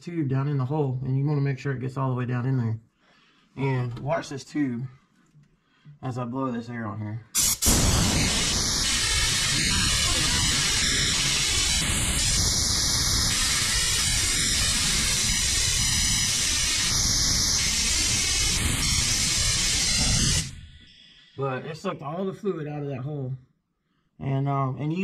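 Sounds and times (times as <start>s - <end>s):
compressed air hissing: 7.4s - 21.4s.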